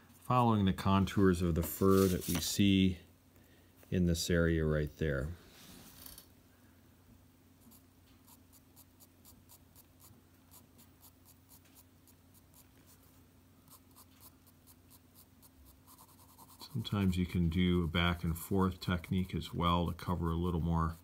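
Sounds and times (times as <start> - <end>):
pencil scratching on paper: 7.6 - 13.0, 13.7 - 20.3.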